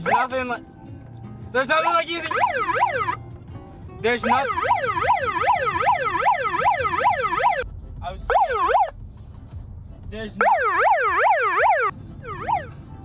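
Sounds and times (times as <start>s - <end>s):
emergency siren yelping: 2.2s - 3.2s, 4.3s - 7.6s, 8.3s - 8.9s, 10.4s - 12.8s.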